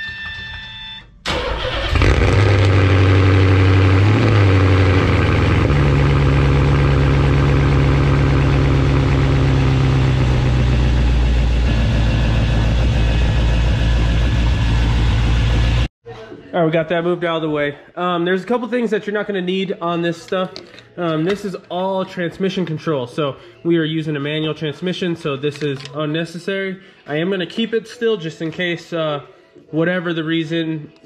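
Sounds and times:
car engine cranking and idling: 1.3 - 15.9.

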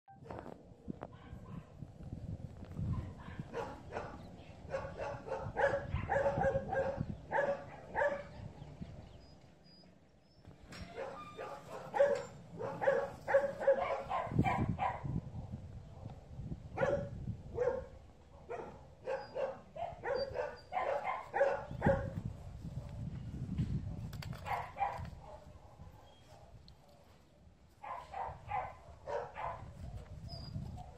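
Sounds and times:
dog barking excitedly: 2.9 - 8.4, 11.0 - 15.2, 16.8 - 22.2, 24.5 - 26.5, 27.8 - 29.8.

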